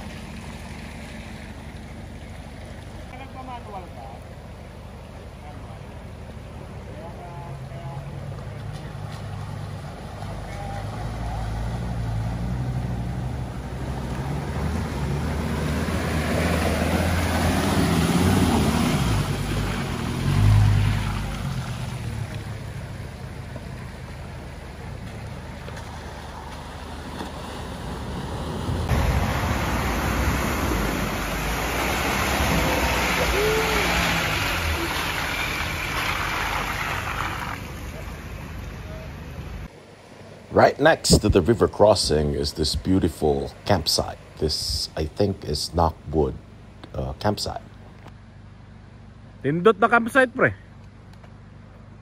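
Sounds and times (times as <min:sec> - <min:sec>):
water rushing and splashing: 0:00.0 - 0:03.2, 0:13.5 - 0:41.9
vehicle engines running low: 0:00.0 - 0:52.0.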